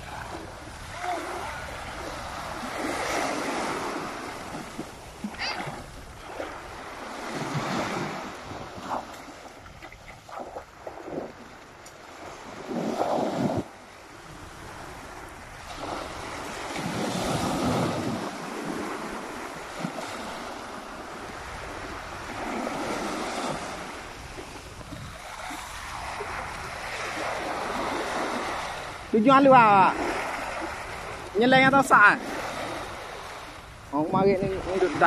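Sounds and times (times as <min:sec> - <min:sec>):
loud rush of surf: 0:00.0 - 0:09.1
small waves breaking on beach: 0:00.0 - 0:35.0.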